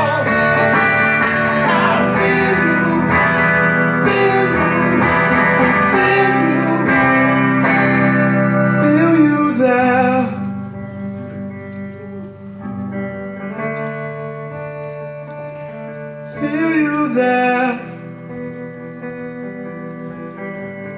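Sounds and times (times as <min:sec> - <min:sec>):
guitars playing sustained chords: 0:00.0 - 0:20.9
man singing wavering notes: 0:01.6 - 0:07.4.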